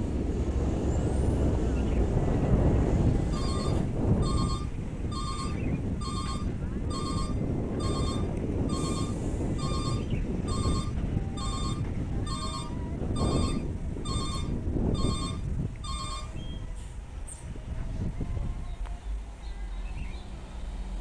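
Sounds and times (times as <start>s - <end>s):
diesel engine rumble: 0.0s - 21.0s
truck reverse alarm beeping: 3.1s - 16.9s.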